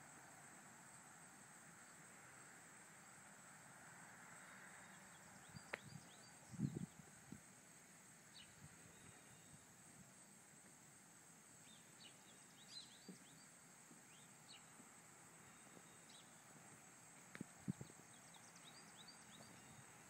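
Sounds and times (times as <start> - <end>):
steady high hiss: 0.0 - 20.0
faint bird chirps: 4.4 - 7.1, 8.3 - 9.8, 11.6 - 16.5, 17.6 - 20.0.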